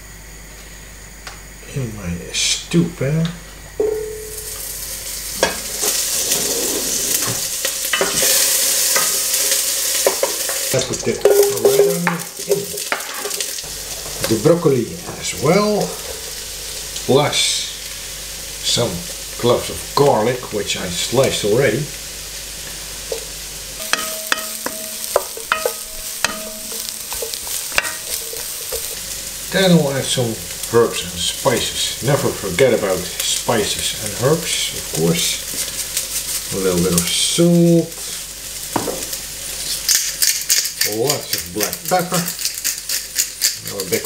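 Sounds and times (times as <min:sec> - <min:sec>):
butter sizzling in a pan: 0:03.8 - 0:44.0
spoon scraping and tapping pan: 0:07.2 - 0:10.6, 0:11.2 - 0:13.5, 0:23.1 - 0:29.0.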